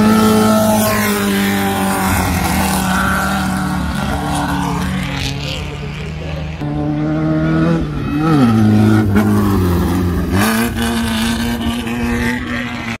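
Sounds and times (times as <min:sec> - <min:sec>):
race buggy engine revving: 0:00.0 - 0:13.0.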